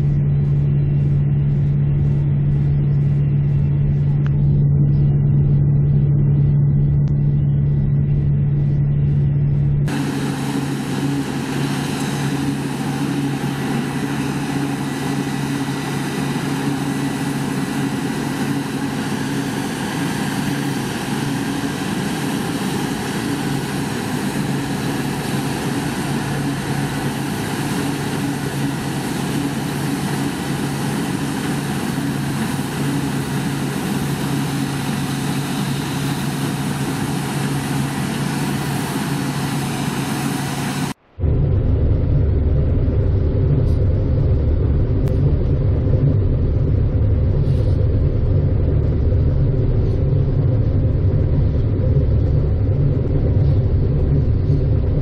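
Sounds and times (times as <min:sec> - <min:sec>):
diesel tractor engine running: 0:00.0 - 0:55.0
hissy machine noise: 0:09.9 - 0:41.2.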